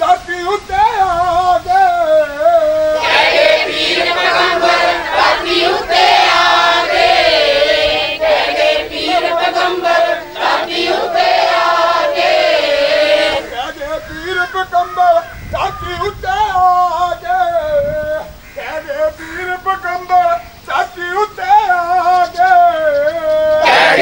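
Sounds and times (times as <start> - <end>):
chorus singing with accompaniment: 2.8 - 13.7, 23.5 - 24.0.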